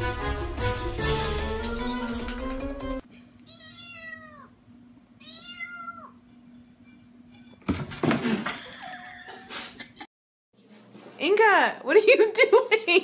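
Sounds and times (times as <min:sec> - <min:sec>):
cat meowing: 0:03.5 - 0:04.6, 0:05.2 - 0:06.2.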